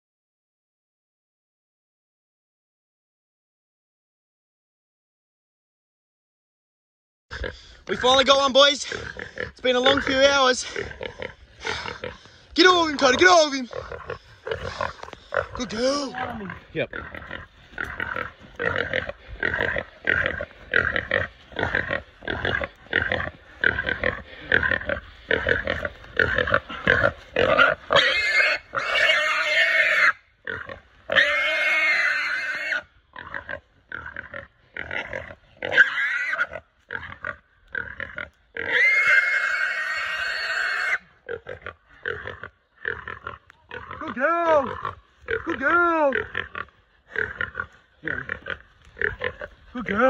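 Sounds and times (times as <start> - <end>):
pig squealing: 8.8 - 12.2, 12.8 - 50.0
pig screaming: 9.2 - 12.0, 12.8 - 47.6.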